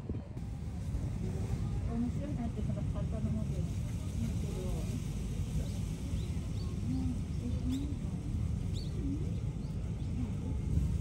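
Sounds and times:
small birds chirping: 5.6 - 10.4.

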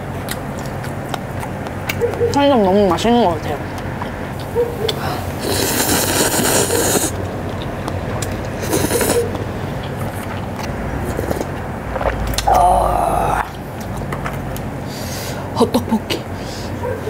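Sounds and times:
person slurping noodles: 5.0 - 7.2, 8.5 - 9.3, 11.0 - 13.5.

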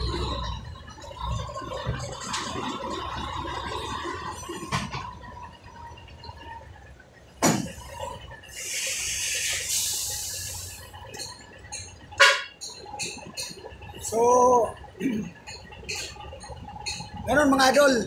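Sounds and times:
air brake hissing: 8.5 - 11.0.

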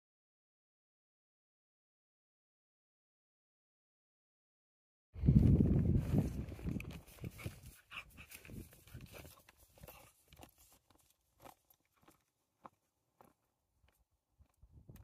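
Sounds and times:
footsteps in grass: 5.2 - 13.4.

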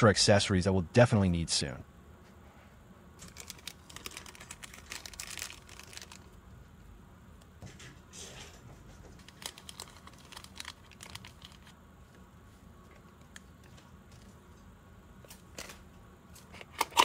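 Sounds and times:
plastic bags crinkling: 3.2 - 6.4, 9.2 - 11.7.

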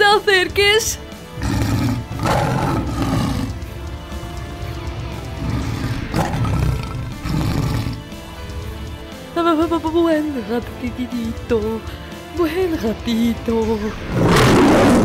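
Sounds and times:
background music: 0.0 - 15.0
lion roar: 1.4 - 3.6, 5.3 - 8.1, 14.1 - 15.0.

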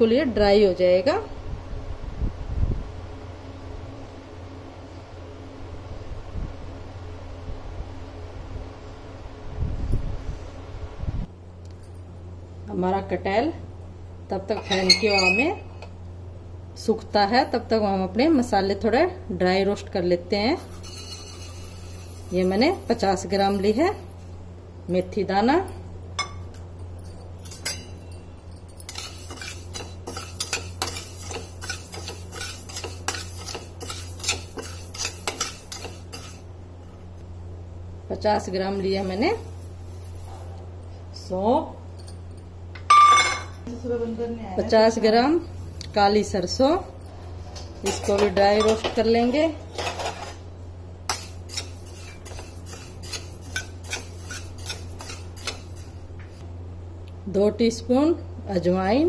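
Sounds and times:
steady low hum: 0.0 - 59.0
spatula scraping metal pan: 14.6 - 15.6, 20.7 - 23.7, 28.9 - 36.5, 51.1 - 56.0.

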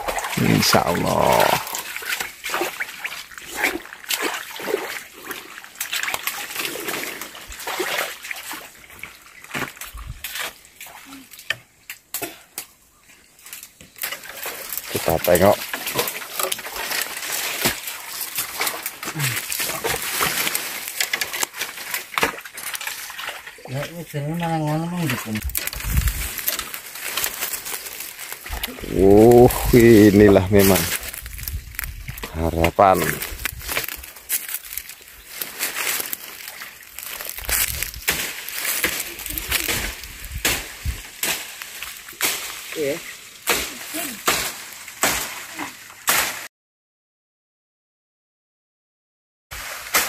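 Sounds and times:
dry twigs crackling and snapping: 0.0 - 7.6, 11.4 - 23.6, 25.0 - 46.4
low falling grunt: 0.3 - 1.8, 19.0 - 19.8, 28.5 - 30.0.

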